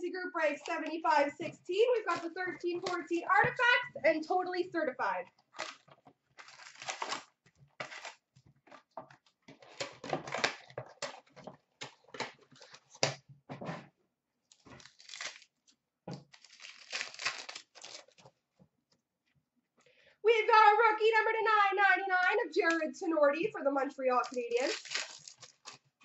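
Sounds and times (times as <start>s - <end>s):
wrappers tearing and rustling: 5.5s - 8.9s, 9.5s - 13.0s, 14.5s - 18.3s, 24.2s - 26.0s.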